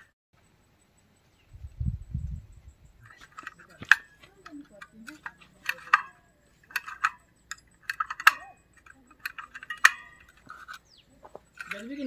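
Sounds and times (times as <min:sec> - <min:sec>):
small hard objects clicking: 0:03.1 - 0:12.0.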